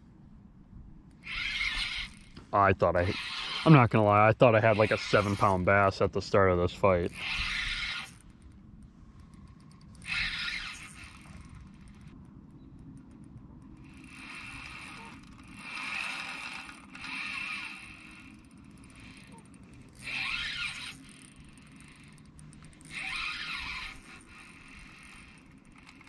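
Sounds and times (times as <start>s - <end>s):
fishing reel spinning: 1.1s - 5.9s, 6.9s - 12.2s, 12.9s - 26.0s.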